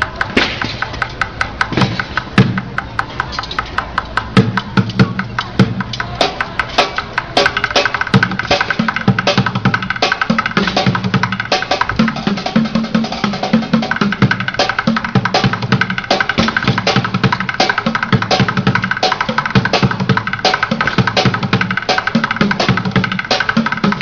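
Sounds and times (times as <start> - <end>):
drumsticks beating plastic buckets: 0.0 - 12.3, 13.6 - 24.0.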